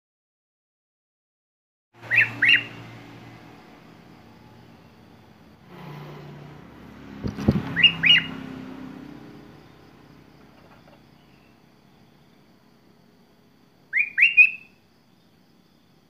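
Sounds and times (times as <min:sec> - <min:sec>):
bird chirps: 0:02.0 - 0:03.0, 0:07.5 - 0:08.6, 0:09.4 - 0:12.2, 0:13.9 - 0:15.4
low hum: 0:02.2 - 0:13.4.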